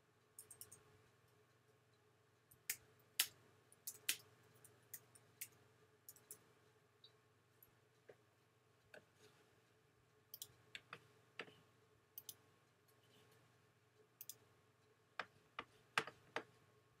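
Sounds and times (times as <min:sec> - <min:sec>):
faint steady hum: 0:00.0 - 0:17.0
computer mouse clicks: 0:00.4 - 0:00.9, 0:02.5 - 0:06.4, 0:10.3 - 0:11.6, 0:12.2 - 0:13.4, 0:14.2 - 0:14.4.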